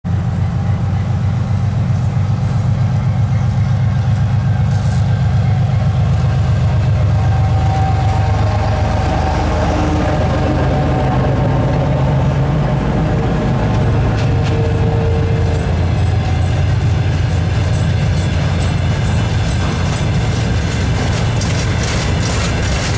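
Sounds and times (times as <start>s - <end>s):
diesel locomotive passing: 0.1s - 22.9s
freight wagons rolling by: 6.5s - 22.9s.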